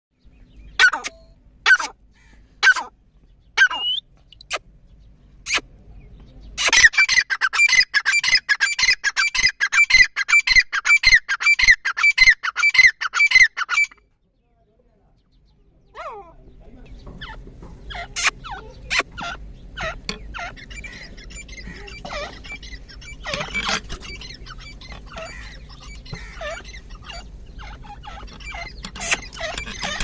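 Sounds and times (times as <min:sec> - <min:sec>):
francolin calling: 0:03.6 - 0:04.6, 0:17.0 - 0:30.0.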